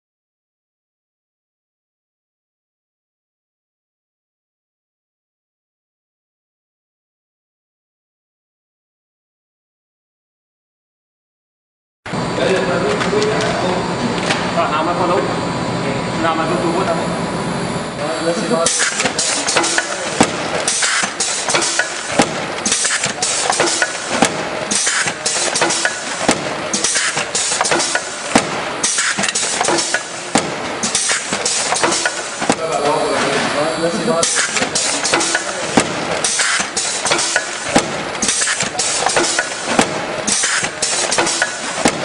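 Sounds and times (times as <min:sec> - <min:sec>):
conveyor mechanical clatter: 0:12.1 - 0:17.1, 0:18.0 - 0:42.0
sharp clack: 0:18.7 - 0:32.6, 0:34.2 - 0:42.0.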